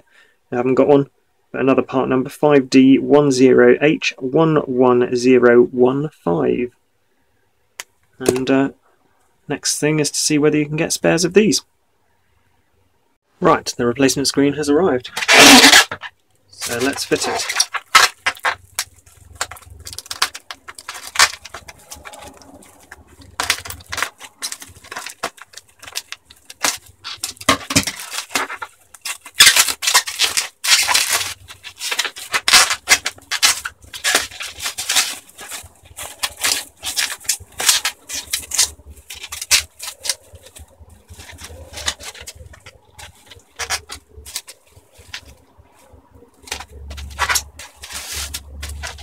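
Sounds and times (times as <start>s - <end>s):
bubble wrap crinkling: 15.1s - 49.0s.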